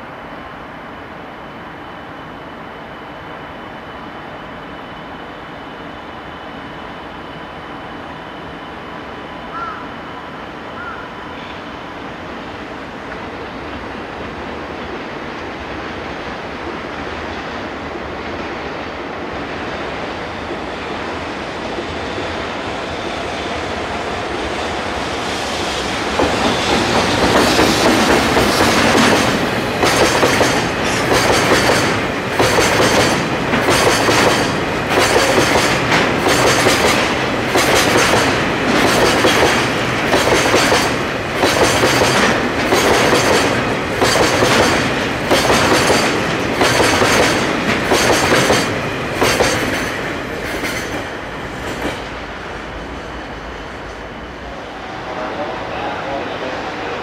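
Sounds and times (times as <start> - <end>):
freight train rumble: 3.6 - 57.0
wheels clacking over rail joints: 26.2 - 52.0.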